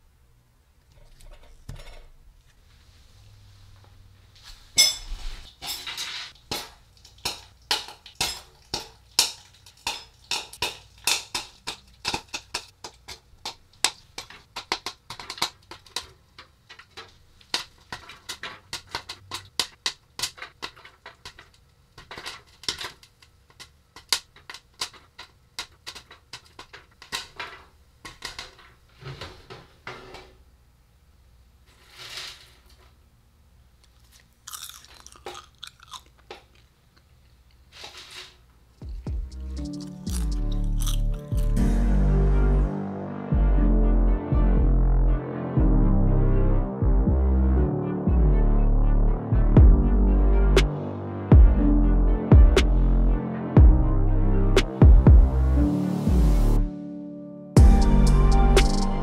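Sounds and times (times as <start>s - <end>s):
kernels clinking against metal: 4.8s - 16.1s
popcorn popping: 6.3s - 28.8s, 38.8s - 41.6s.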